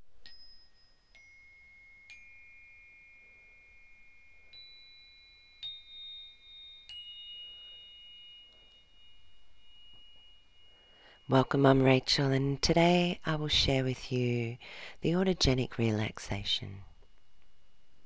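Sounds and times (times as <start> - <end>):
chimes ringing: 0.2 - 13.1.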